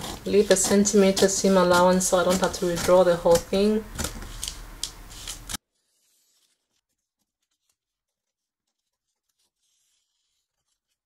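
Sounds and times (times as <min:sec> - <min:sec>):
scissors snipping paper: 0:00.0 - 0:05.6.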